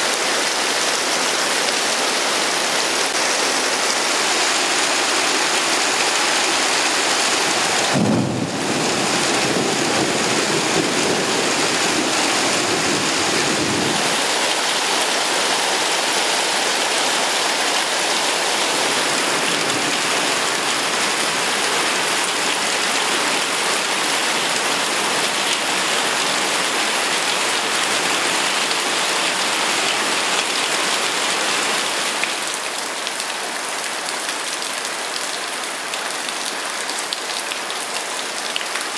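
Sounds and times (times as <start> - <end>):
heavy rain on paving: 0.0 - 38.9
thunder crack and rumble: 7.8 - 12.0.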